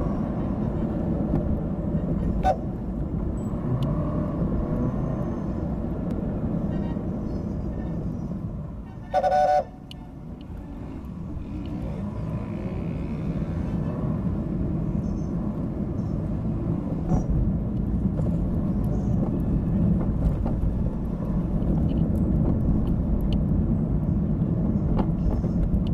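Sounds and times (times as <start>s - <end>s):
road traffic rumble: 0.0s - 25.9s
vehicle horn toot: 9.0s - 9.8s.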